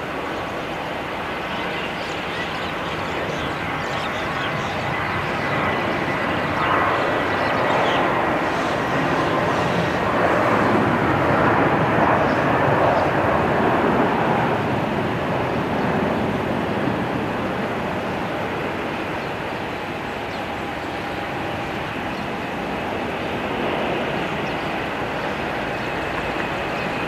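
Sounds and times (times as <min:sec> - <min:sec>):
jet engines rushing: 0:00.0 - 0:27.0.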